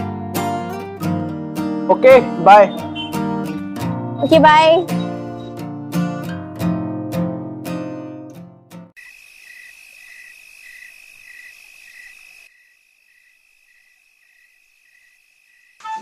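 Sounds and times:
crickets chirping: 9.0s - 16.0s.

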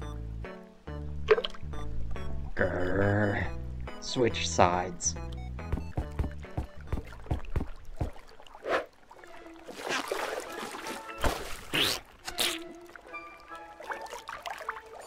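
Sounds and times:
light background music: 0.0s - 8.1s, 9.2s - 15.0s
watery splash effects: 5.8s - 15.0s
fishing rod whooshes: 8.6s - 9.0s.

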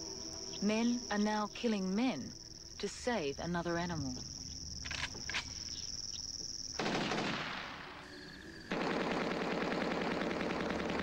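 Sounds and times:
high insect trill: 0.0s - 10.1s
automatic gunfire: 6.8s - 7.8s, 8.7s - 11.0s.

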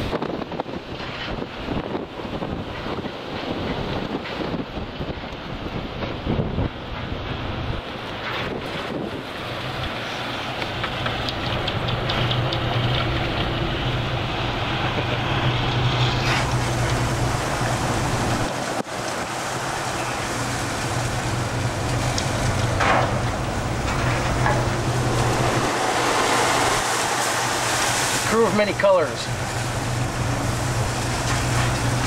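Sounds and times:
rushing wind: 0.0s - 32.0s
sea noise: 0.0s - 32.0s
boat engine humming: 0.8s - 32.0s.

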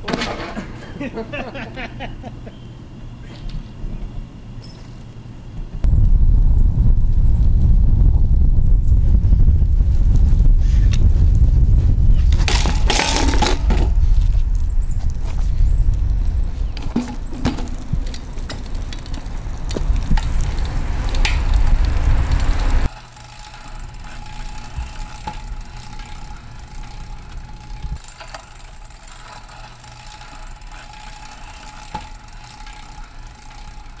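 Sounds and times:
bike tyres rolling on asphalt: 5.0s - 34.0s
wind on microphone: 5.8s - 22.9s, 27.2s - 28.0s.

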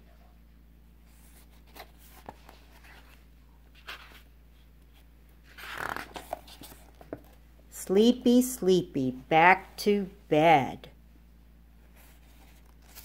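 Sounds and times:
book pages rustling: 1.0s - 7.4s, 11.9s - 13.0s.

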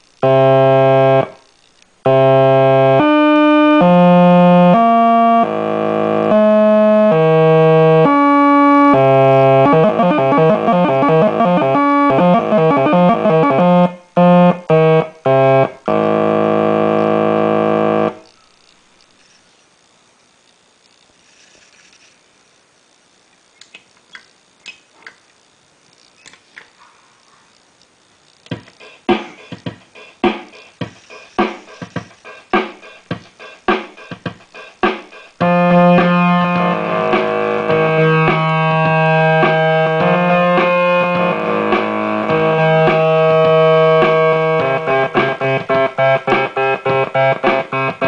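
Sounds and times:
synthesizer electronic tones: 0.2s - 1.4s, 2.1s - 18.4s.

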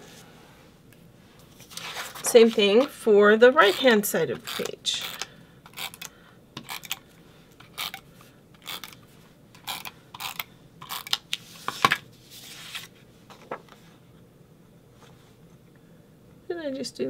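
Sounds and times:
paper rustling and scraping: 1.5s - 2.9s, 11.0s - 14.0s.

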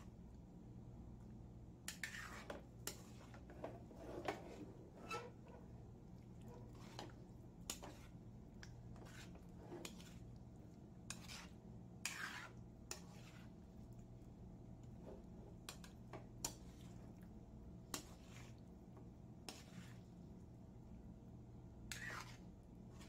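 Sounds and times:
soft wet squishing: 0.0s - 23.0s
utensil scraping metal bowl: 1.9s - 5.7s, 8.9s - 10.2s, 11.0s - 13.6s, 21.9s - 22.4s.

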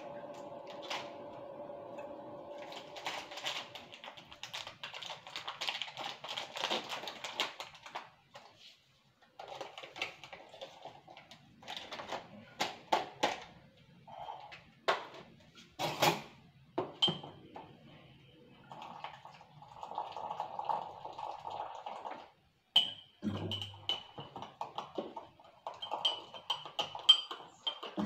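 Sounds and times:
rapid clicks and crinkles: 2.6s - 12.9s.

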